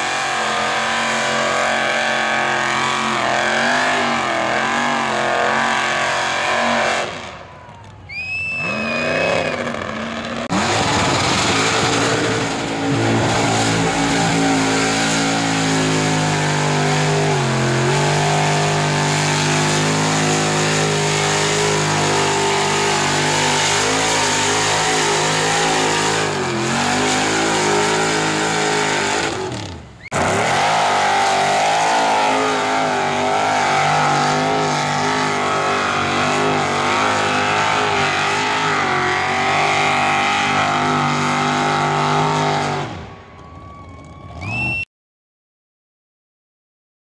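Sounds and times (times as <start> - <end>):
trucks churning through mud: 0.0 - 43.2
truck engines revving: 0.0 - 43.4.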